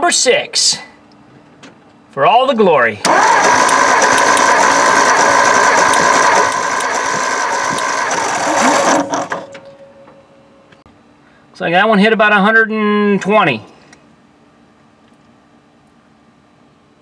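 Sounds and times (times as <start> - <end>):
starter motor cranking engine: 3.0 - 9.6.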